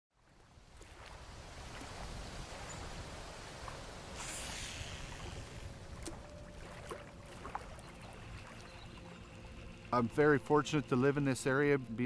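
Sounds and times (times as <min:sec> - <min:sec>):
water washing: 0:00.3 - 0:10.8
faint steady tone: 0:04.1 - 0:12.0.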